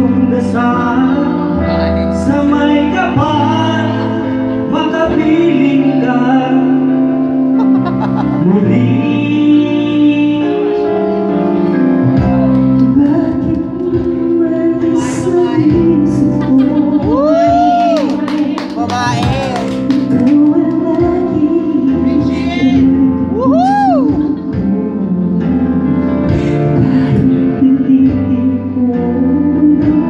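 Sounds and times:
instrumental backing track: 0.0s - 30.0s
people singing into microphones: 12.1s - 30.0s.

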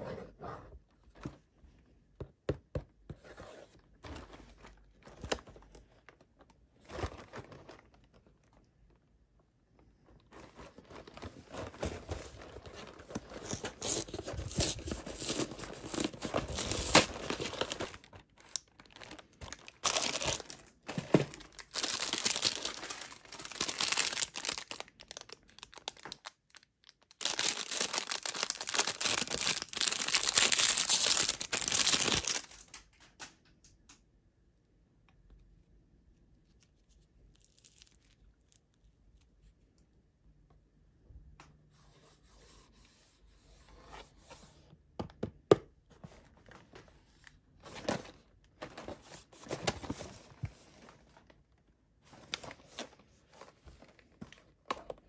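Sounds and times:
plastic wrapper crinkling: 10.3s - 33.3s.

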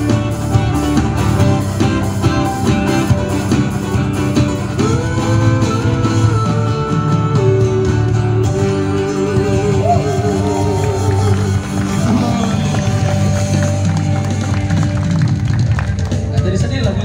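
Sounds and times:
live band music led by guitar: 0.0s - 17.0s
man singing long held notes: 4.7s - 13.9s.

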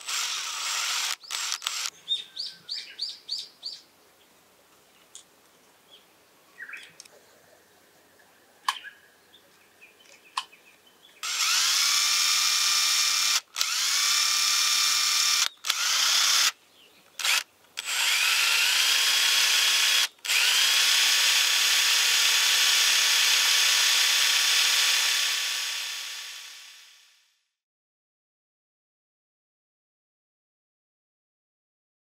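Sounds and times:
electric drill whining: 0.0s - 1.9s, 11.2s - 16.6s, 17.2s - 27.3s.

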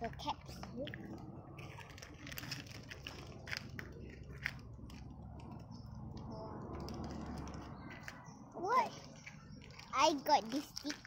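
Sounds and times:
plastic packaging rustling: 0.1s - 5.8s, 8.9s - 11.0s
plastic packaging crinkling: 0.6s - 5.7s, 6.7s - 8.3s, 8.9s - 11.0s.

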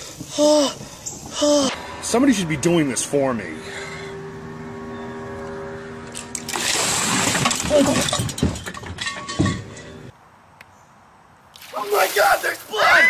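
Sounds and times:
man gasping and yelling: 0.3s - 2.0s
water splashing over a man: 11.6s - 13.0s.

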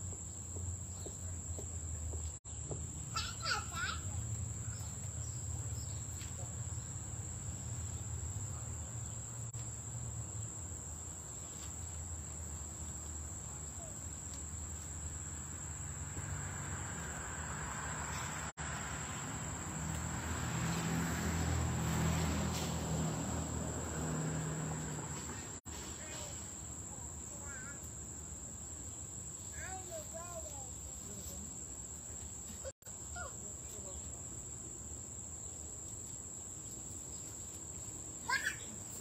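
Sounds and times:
high-pitched insect trill: 26.0s - 39.0s.

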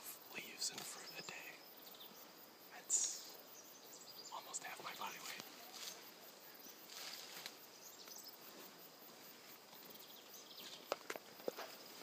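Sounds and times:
sharp snaps: 2.9s - 3.3s.

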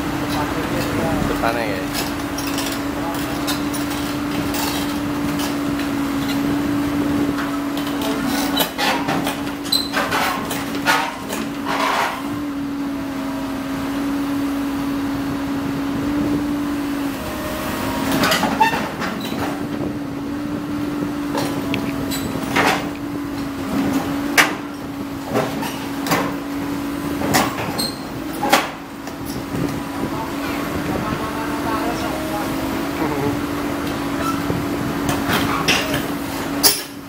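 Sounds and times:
excavator engine running: 0.0s - 37.0s
metal clanks of tracks: 7.3s - 12.3s, 18.1s - 19.8s, 21.3s - 26.5s, 27.2s - 29.8s, 33.8s - 37.0s.

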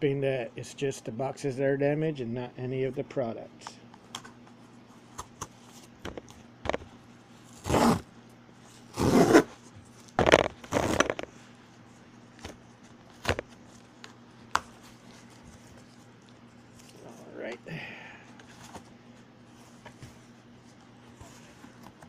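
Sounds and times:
cardboard ripping: 10.2s - 11.3s.

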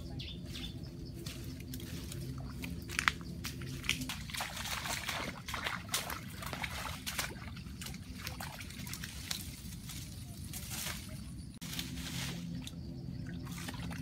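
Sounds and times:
stream water splashing: 1.2s - 14.0s.

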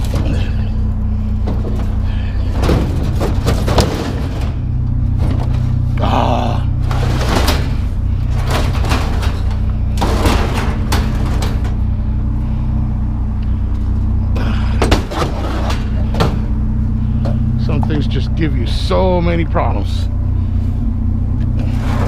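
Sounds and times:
low engine hum: 0.0s - 22.0s
metal cabinet scraping and banging: 1.4s - 5.7s, 6.8s - 11.9s, 14.8s - 16.5s.

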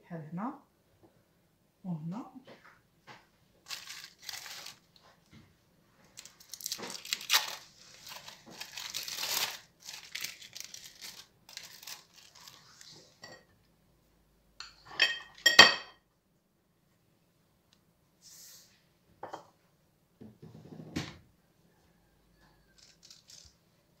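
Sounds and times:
plastic film crinkling: 3.6s - 5.3s, 6.0s - 13.2s, 22.8s - 23.6s
clinks on ceramic plate: 14.6s - 16.0s.

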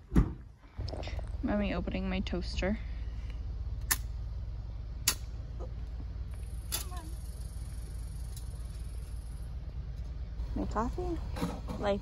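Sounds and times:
steady low rumble: 0.0s - 12.0s
sharp metallic clicks: 5.0s - 5.3s.

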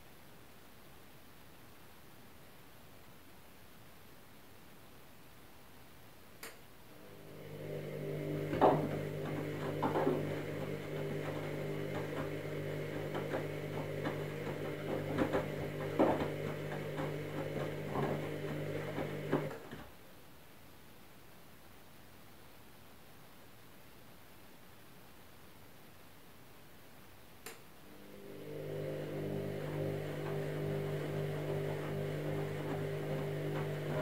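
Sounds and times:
washing machine motor hum: 6.9s - 19.9s, 27.8s - 34.0s
thuds and sloshing of wet laundry: 8.4s - 19.7s.

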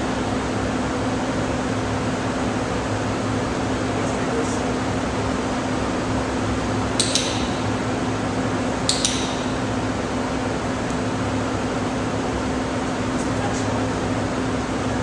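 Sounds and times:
ventilation hum: 0.0s - 15.0s
sharp metallic clicks: 7.0s - 7.7s, 8.9s - 9.6s.

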